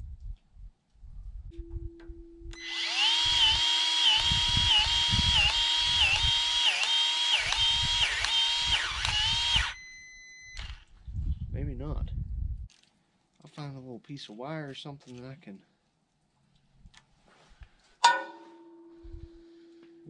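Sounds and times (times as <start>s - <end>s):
cordless power tool motor whining: 2.6s - 10.9s.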